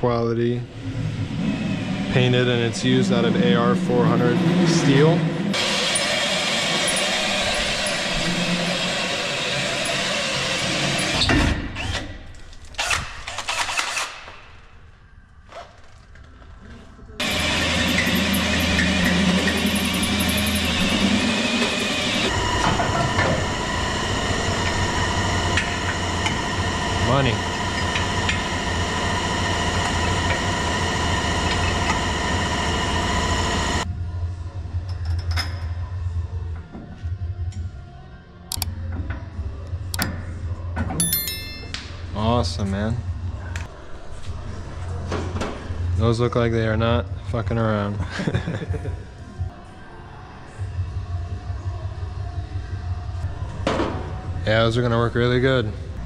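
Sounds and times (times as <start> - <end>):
cordless drill boring through metal: 5.6 - 12.0, 17.2 - 22.6.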